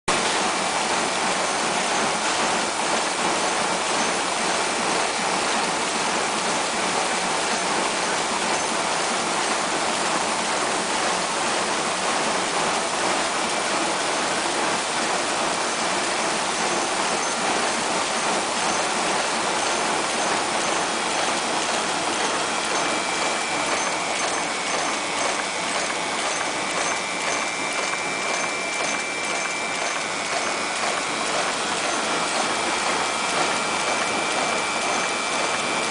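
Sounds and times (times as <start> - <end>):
vibratory bowl feeder rattling parts: 0.2 - 35.9.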